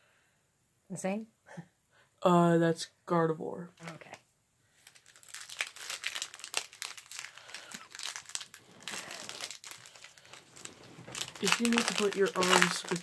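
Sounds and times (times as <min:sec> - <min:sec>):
foil wrapper tearing and crinkling: 0:04.8 - 0:13.0.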